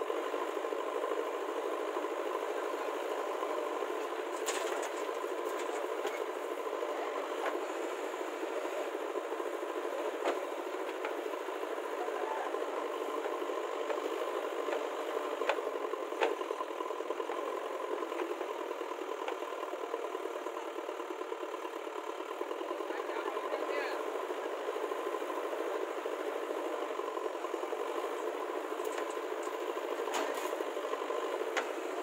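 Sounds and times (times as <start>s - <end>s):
diesel engines running: 0.0s - 32.0s.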